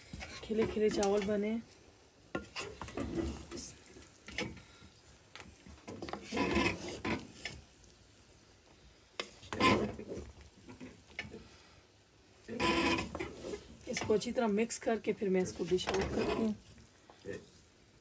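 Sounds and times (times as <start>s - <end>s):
wooden spatula scraping metal pot: 0.0s - 1.6s, 2.3s - 4.8s, 5.4s - 7.8s, 9.1s - 11.6s, 12.4s - 17.6s.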